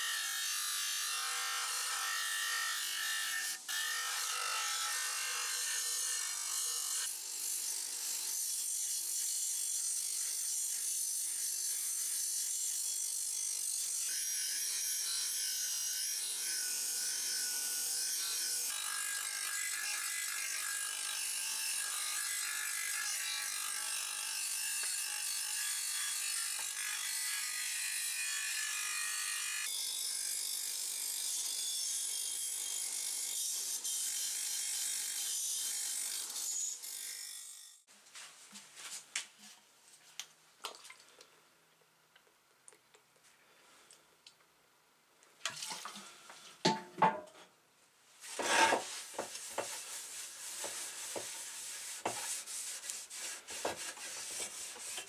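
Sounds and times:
knocks and scrapes on wood: 0:46.6 - 0:47.5, 0:48.2 - 0:55.0
rag rubbing metal: 0:48.3 - 0:55.0.

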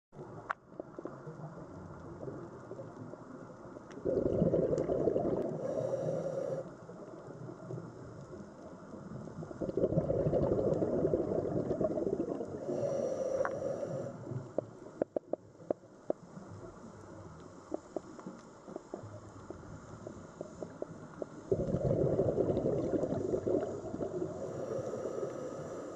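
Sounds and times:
exhaled bubbles underwater: 0:03.9 - 0:06.6, 0:09.0 - 0:13.0, 0:21.3 - 0:25.9
regulator hiss: 0:12.6 - 0:14.7, 0:23.1 - 0:25.9.

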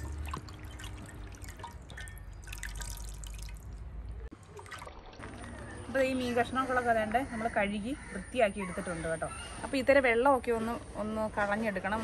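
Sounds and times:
water dripping and splashing: 0:00.0 - 0:06.0.

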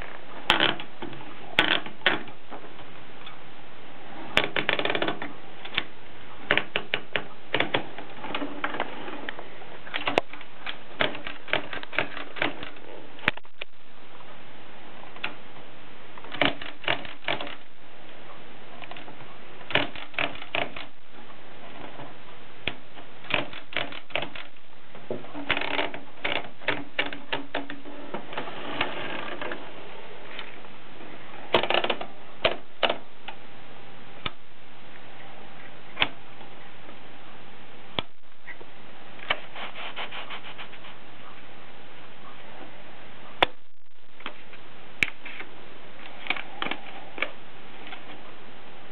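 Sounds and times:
typewriter clicking and ratcheting: 0:09.9 - 0:12.8, 0:16.3 - 0:17.7, 0:18.8 - 0:20.9, 0:22.6 - 0:24.5, 0:25.4 - 0:27.8, 0:31.5 - 0:33.0.

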